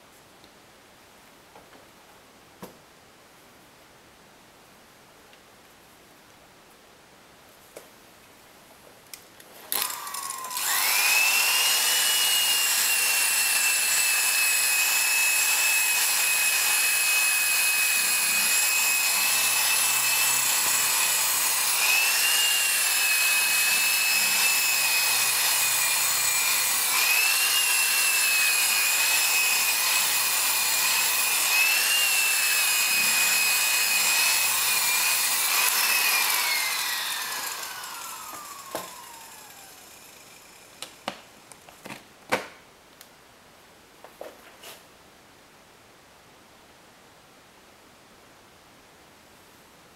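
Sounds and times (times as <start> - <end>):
electric polisher motor whine: 9.8 - 40.7.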